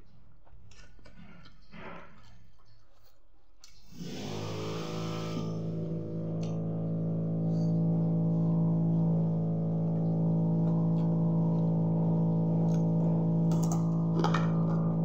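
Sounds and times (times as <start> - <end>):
low droning tone: 3.9 - 15.0.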